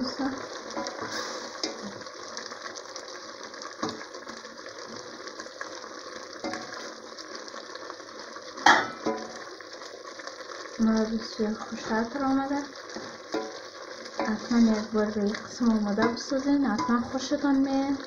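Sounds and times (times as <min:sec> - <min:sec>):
syrup bubbling in a pot: 0:00.0 - 0:18.0
wooden spoon stirring: 0:00.0 - 0:18.0
spoon knocking against pot: 0:08.7 - 0:09.3, 0:13.3 - 0:13.6, 0:16.0 - 0:17.1.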